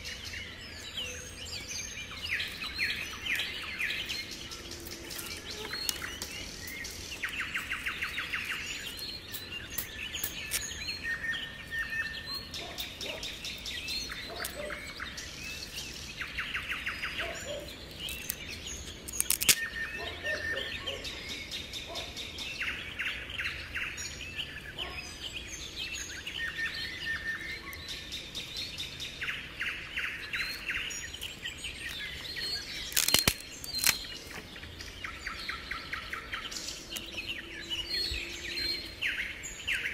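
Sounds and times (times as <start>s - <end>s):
bird trill: 0.0s - 39.9s
songbirds singing: 0.0s - 39.9s
dry stick snapping: 4.8s - 6.5s, 10.3s - 10.8s, 17.9s - 19.7s, 32.8s - 34.2s.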